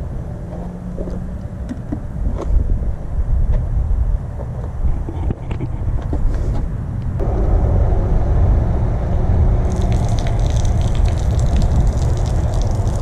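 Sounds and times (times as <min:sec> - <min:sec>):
wind on microphone: 0:01.0 - 0:13.0
pump humming: 0:07.2 - 0:13.0
water spraying onto grass: 0:09.6 - 0:13.0.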